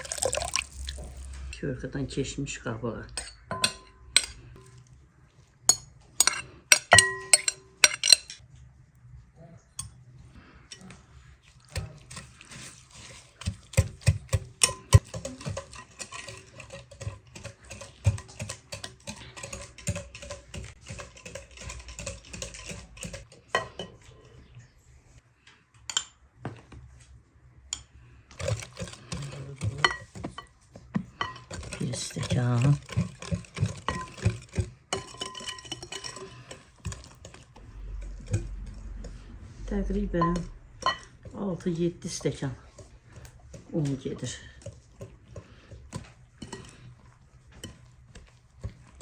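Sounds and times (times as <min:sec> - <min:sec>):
utensil scraping mixing bowl: 0:00.0 - 0:01.7, 0:05.7 - 0:08.4, 0:10.7 - 0:24.5, 0:28.2 - 0:49.0.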